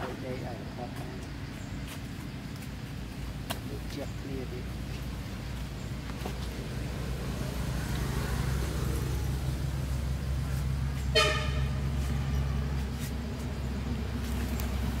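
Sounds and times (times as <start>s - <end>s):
motor vehicle hum: 0.0s - 15.0s
horn toot: 11.1s - 12.0s.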